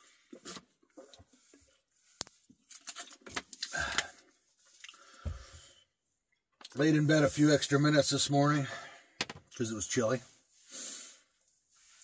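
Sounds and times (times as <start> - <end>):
plastic bottle clicks and rustles: 2.2 - 4.2, 9.2 - 9.6
person drinking from plastic bottle: 2.7 - 5.4.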